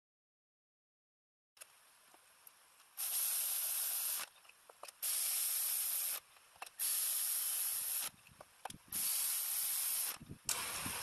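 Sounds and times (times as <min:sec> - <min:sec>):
cordless electric ratchet running: 0:03.0 - 0:04.3, 0:05.0 - 0:08.2, 0:08.9 - 0:11.0.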